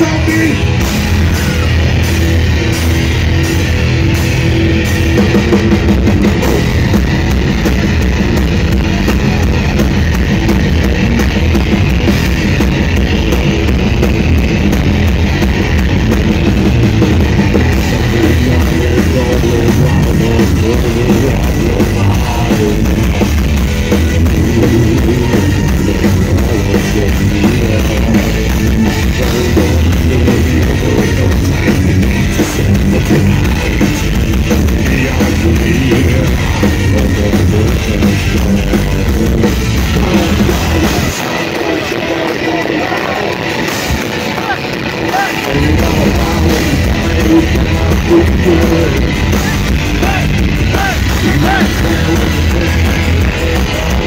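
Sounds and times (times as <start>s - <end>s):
distorted electric guitars: 0.0s - 54.0s
drum kit: 0.0s - 54.0s.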